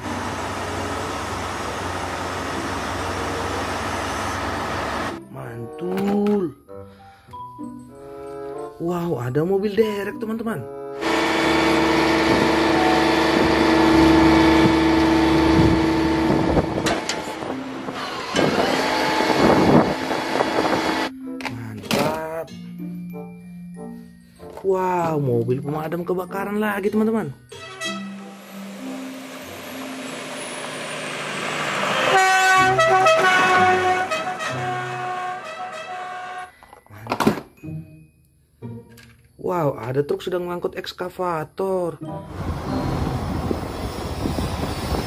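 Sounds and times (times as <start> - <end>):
fire engine driving past on gravel: 0.0 - 5.2, 28.2 - 36.4
hydraulic crane droning and whining: 0.0 - 5.2, 10.9 - 21.1, 27.8 - 36.5, 42.3 - 45.0.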